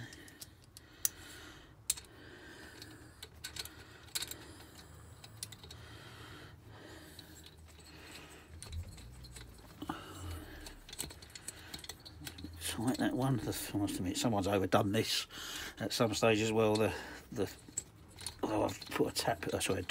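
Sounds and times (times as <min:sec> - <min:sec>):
small metallic clicks and taps: 0:00.0 - 0:01.2, 0:01.8 - 0:02.1, 0:02.8 - 0:05.8, 0:10.6 - 0:13.0.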